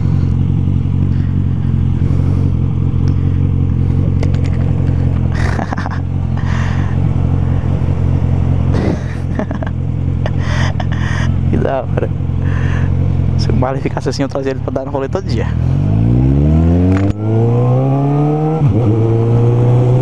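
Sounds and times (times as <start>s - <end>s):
motorcycle engine idling: 0.0s - 15.7s.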